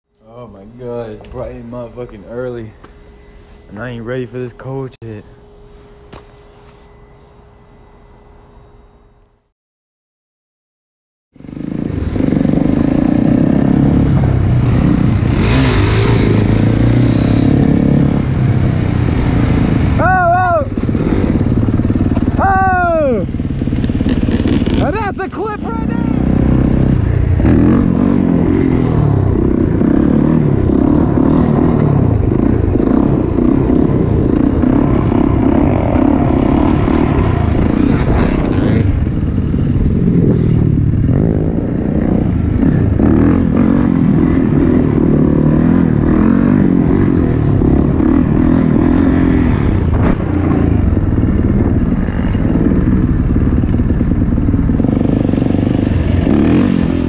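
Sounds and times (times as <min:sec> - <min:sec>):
dirt bike engine revving: 0:11.4 - 0:57.0.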